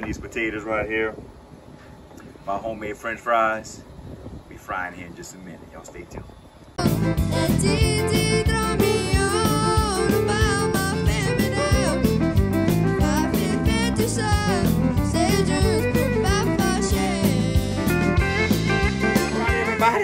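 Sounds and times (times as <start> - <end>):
pitch-sliding melody: 6.8 - 20.0
steady drum beat: 6.8 - 20.0.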